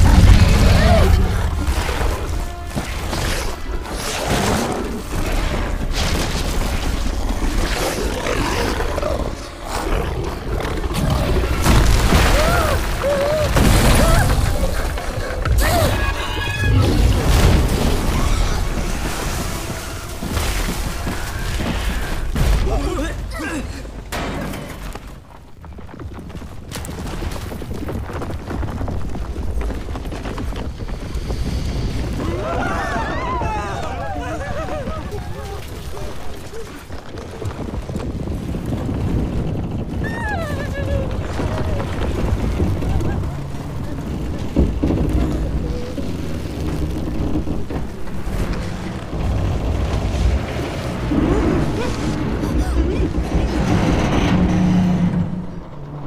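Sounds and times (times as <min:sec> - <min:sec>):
giant creature roaring: 0:00.0 - 0:02.7
dramatic orchestral score: 0:00.0 - 0:25.2
deep rumbles and booms: 0:00.0 - 0:56.0.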